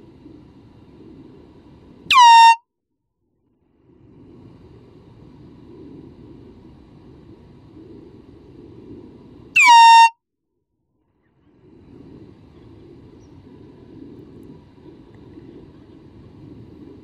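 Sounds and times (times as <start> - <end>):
low rumble of outdoor background: 0.0 - 17.0
loud air horn blast: 2.1 - 2.6, 9.6 - 10.2.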